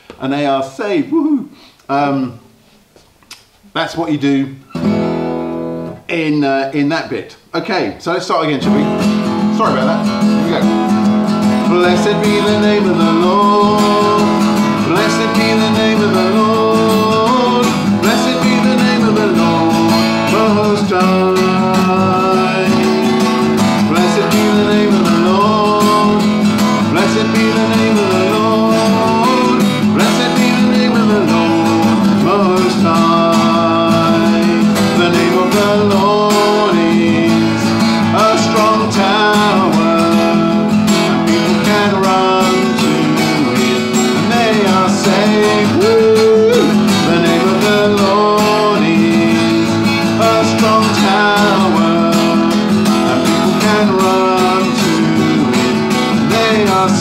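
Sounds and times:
strummed acoustic guitar: 4.6 - 6.4, 8.5 - 57.0
man singing: 11.4 - 57.0.

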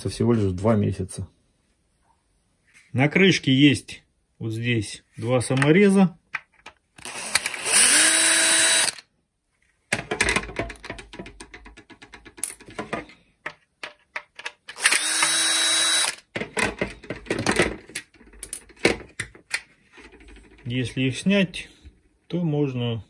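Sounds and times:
cordless drill whirring: 7.0 - 9.1, 14.7 - 16.3
plastic cover clicks and knocks: 9.9 - 14.7, 16.3 - 20.6.

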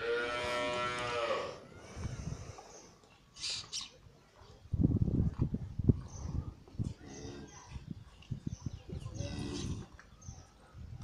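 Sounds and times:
cow mooing: 0.0 - 1.6.

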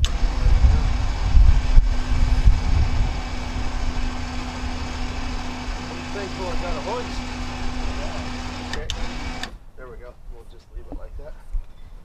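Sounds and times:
truck engine running: 0.0 - 9.5
loud mechanical hiss: 0.0 - 9.6.

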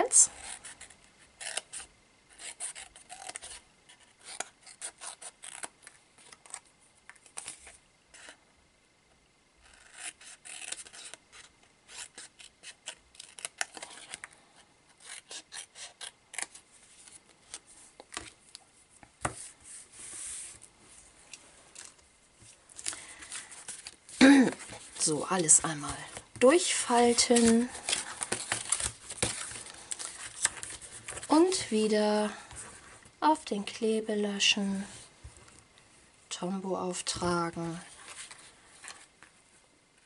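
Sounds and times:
paper rustling: 21.7 - 31.6, 37.9 - 39.4.

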